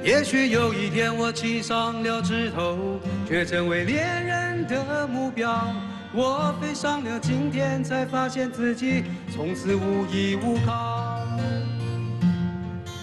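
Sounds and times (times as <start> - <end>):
man singing pop ballad: 0.0 - 13.0.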